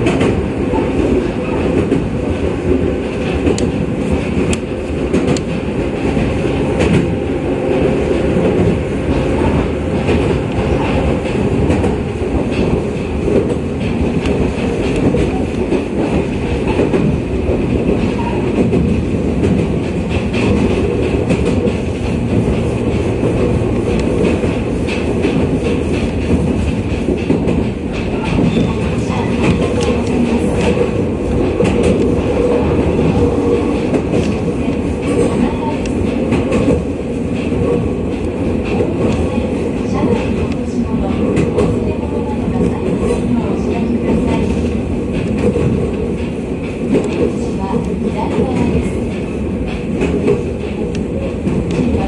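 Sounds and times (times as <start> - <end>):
train wheels rumbling on rail: 0.0 - 52.0.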